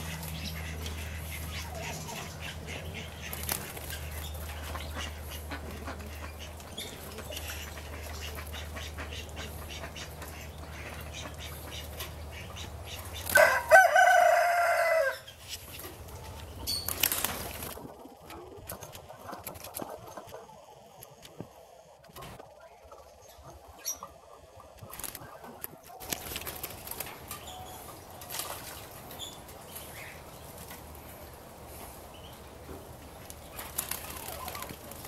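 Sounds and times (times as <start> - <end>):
rooster crowing: 13.3 - 15.3.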